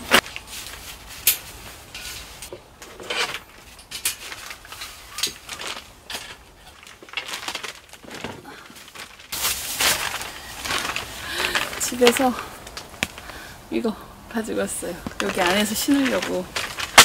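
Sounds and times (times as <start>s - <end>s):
plastic crate knocks and clatters: 5.6s - 9.2s.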